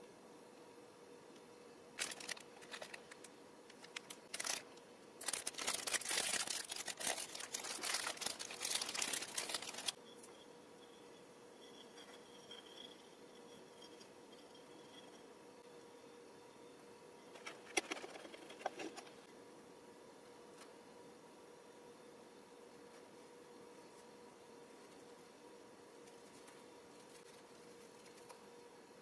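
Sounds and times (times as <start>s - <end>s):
plastic wrapper crinkling: 2.0s - 10.0s.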